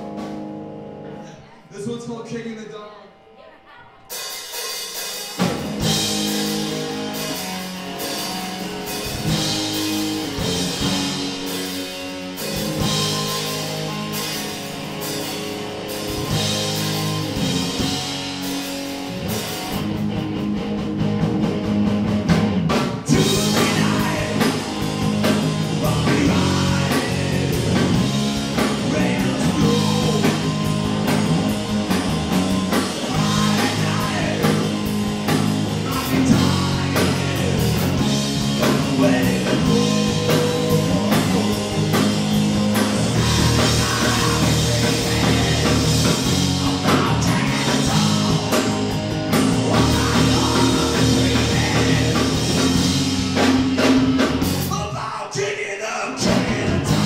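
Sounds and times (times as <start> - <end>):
drum kit: 0.0 - 1.4, 4.0 - 55.1, 56.1 - 57.0
electric guitars: 0.0 - 1.7, 4.0 - 57.0
bass guitar: 0.0 - 2.2, 4.1 - 57.0
person singing: 23.1 - 31.7, 32.7 - 34.9, 35.7 - 52.9, 54.6 - 57.0.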